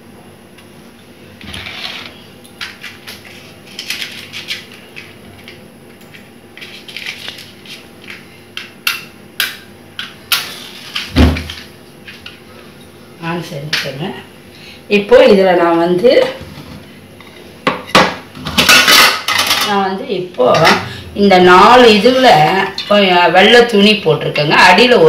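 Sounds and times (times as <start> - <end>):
metal kitchen utensils clinking: 18.5 - 19.8.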